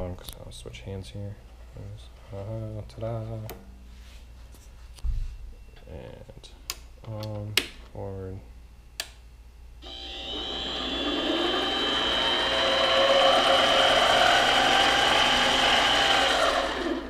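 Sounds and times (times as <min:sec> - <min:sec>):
high whine: 0:09.8 - 0:17.0
lathe motor running: 0:09.8 - 0:17.0.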